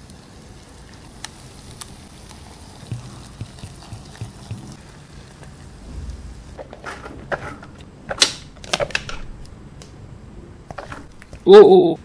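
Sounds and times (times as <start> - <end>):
sharp taps and knocks: 2.9 - 4.8.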